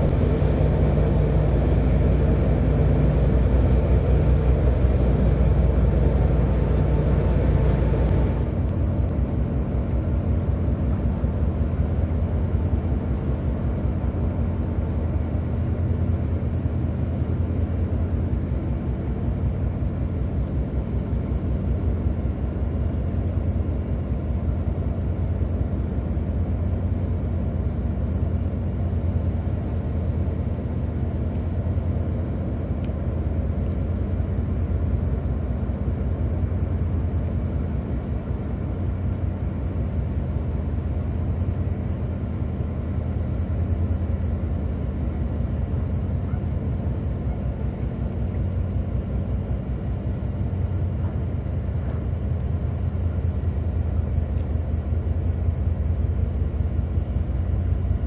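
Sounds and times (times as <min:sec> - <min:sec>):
ship engines droning: 0:00.0 - 0:58.0.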